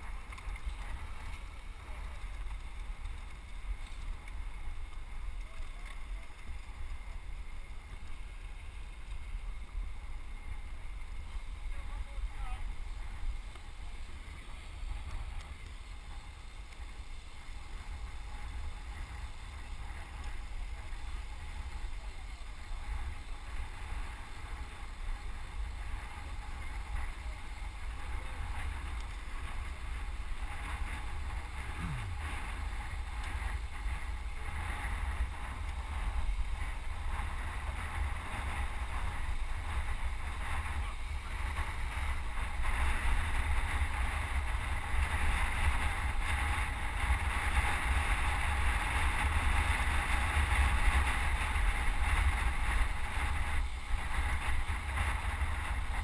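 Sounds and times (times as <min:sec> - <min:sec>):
wind buffeting a microphone: 0:12.7 - 0:56.0.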